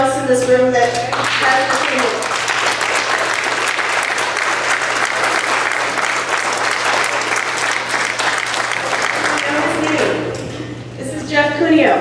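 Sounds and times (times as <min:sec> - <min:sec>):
audience applauding: 0:00.9 - 0:10.2.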